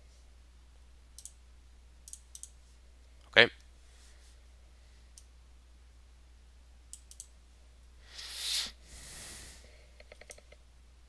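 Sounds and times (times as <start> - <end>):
faint low hum: 0.0 - 8.2, 8.8 - 11.0
computer mouse clicks: 1.2 - 1.4, 2.0 - 2.6, 6.9 - 7.3, 10.0 - 10.6.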